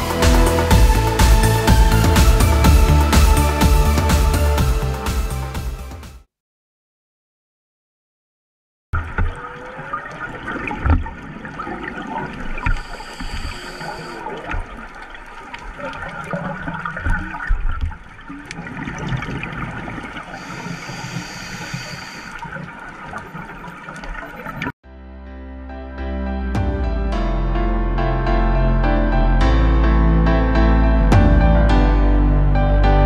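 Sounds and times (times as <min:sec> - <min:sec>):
music: 0:00.0 - 0:06.3, 0:24.8 - 0:33.0
whale song underwater: 0:09.0 - 0:24.7
regulator hiss: 0:12.8 - 0:14.2, 0:20.3 - 0:22.4.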